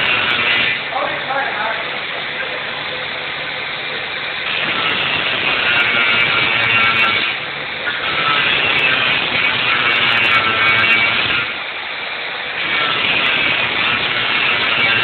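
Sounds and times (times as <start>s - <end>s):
angle grinder grinding metal: 0.0s - 1.4s, 4.4s - 11.6s, 12.6s - 15.0s.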